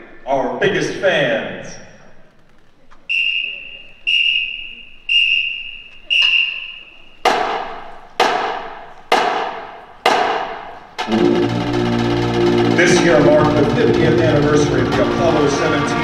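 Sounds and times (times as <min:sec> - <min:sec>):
whistle blasts: 0:03.1 - 0:07.2
percussion crashes: 0:07.3 - 0:16.0.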